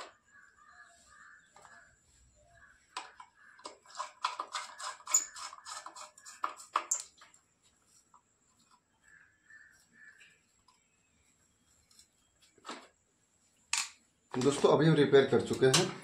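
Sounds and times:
small clicks and scrapes on wiring: 2.9 - 9.2, 11.7 - 12.9.

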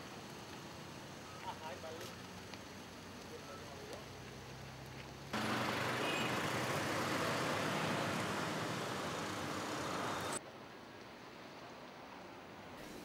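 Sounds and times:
vehicles passing: 0.2 - 10.4.

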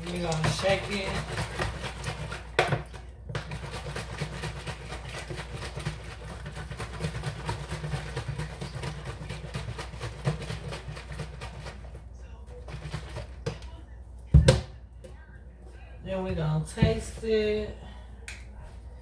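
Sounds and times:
liquid sloshing in shaken jug: 0.0 - 13.5.

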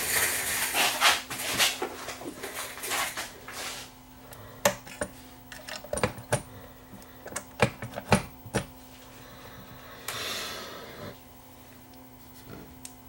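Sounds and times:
scraping rustle: 0.0 - 3.9.

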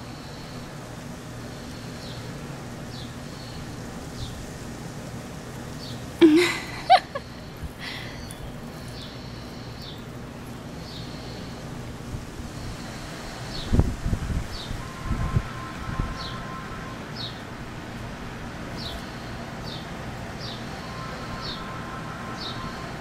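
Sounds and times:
steady low hum: 0.0 - 23.0
loud wavering call: 14.6 - 17.5, 20.6 - 23.0.

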